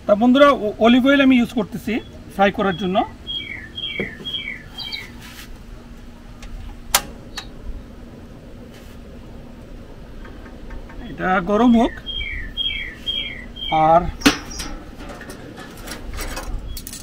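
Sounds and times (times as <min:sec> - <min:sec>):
bird calling high notes: 0:01.8 - 0:05.2, 0:11.6 - 0:14.7.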